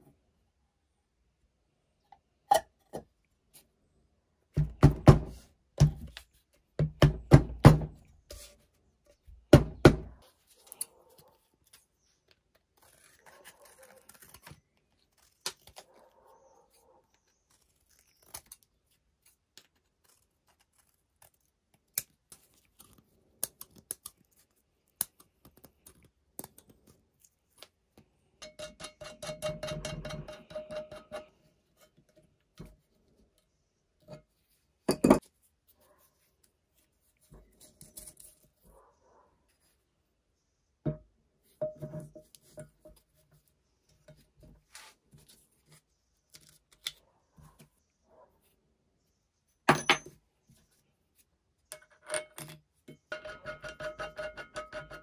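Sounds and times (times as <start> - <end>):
hammer striking metal pipe: 53.1 - 55.0.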